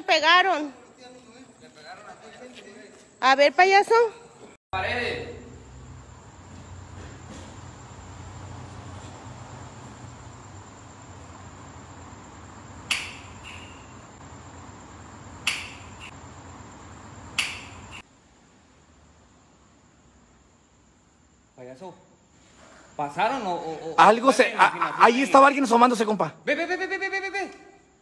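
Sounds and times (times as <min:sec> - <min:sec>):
sharp clicks: 0:12.9 - 0:13.7, 0:15.4 - 0:16.1, 0:17.4 - 0:18.0.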